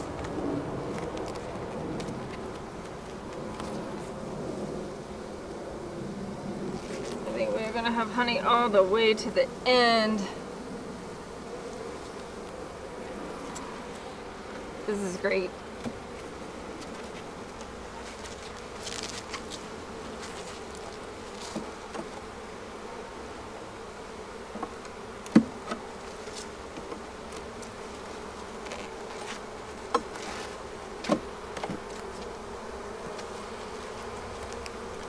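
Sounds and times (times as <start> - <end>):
bee colony buzzing: 0.0 - 35.0
hive tool clicking on wooden frames: 15.8 - 22.3, 24.5 - 35.0.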